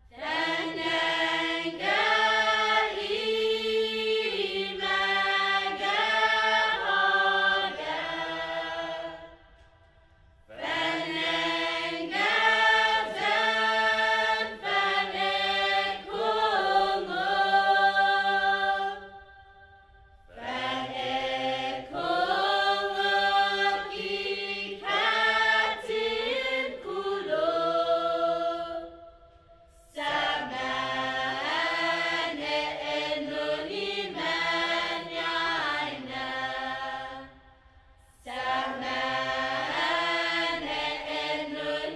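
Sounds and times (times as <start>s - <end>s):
choir singing chant-like song: 0.0s - 41.9s.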